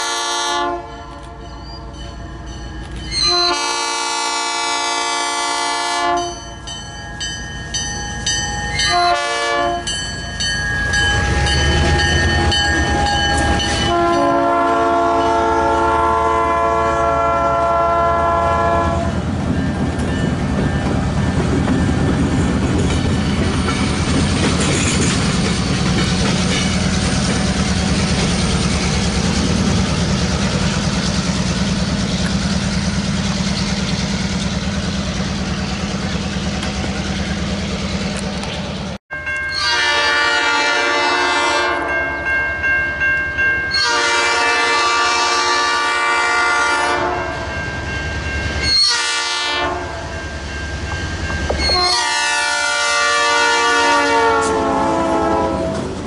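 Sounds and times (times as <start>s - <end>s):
locomotive air horn: 0.0s - 1.5s, 3.1s - 6.4s, 8.9s - 9.9s, 13.0s - 19.2s, 39.5s - 42.1s, 43.7s - 47.4s, 48.6s - 50.1s, 51.6s - 56.0s
rumble of passing train: 0.0s - 56.0s.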